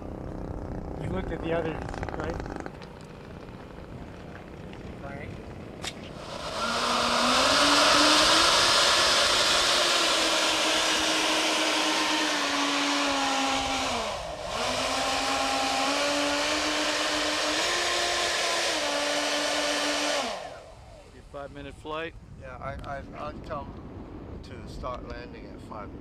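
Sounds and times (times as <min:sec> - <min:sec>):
electric ducted fans whining: 0:00.0 - 0:26.0.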